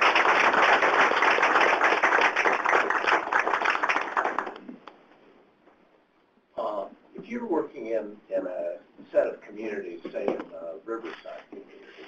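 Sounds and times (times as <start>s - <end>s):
audience applause: 0.0s - 4.6s.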